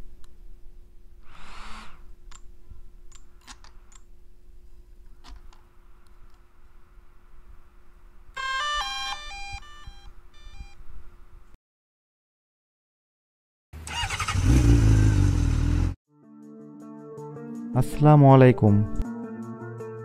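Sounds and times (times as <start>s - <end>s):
drone start-up tune beeps: 8.4s - 10.8s.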